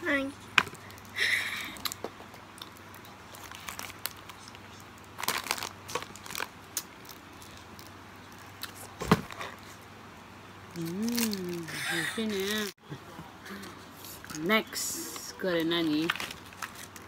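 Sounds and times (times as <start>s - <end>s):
plastic wrapper crinkling: 3.0s - 8.5s, 15.6s - 17.0s.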